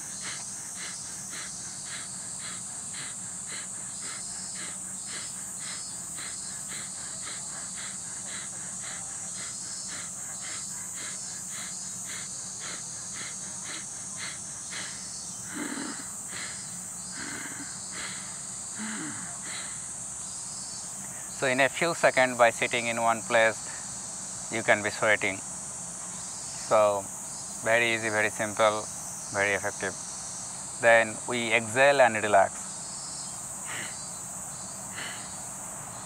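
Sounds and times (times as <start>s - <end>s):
rapid forceful nasal breathing: 0.0s - 25.4s, 33.1s - 36.0s
high insect drone: 0.0s - 36.0s.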